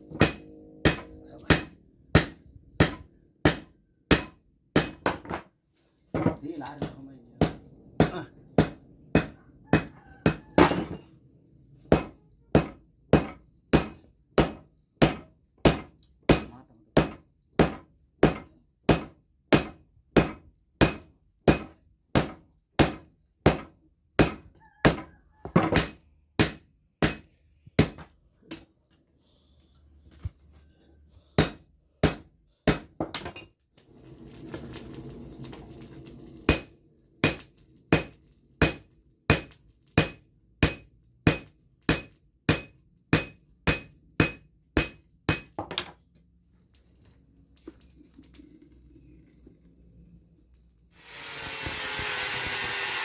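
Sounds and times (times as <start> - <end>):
hammer striking steel on anvil: 0.1 - 5.3, 6.8 - 11.0, 11.8 - 28.6, 31.4 - 33.5, 36.5 - 45.9.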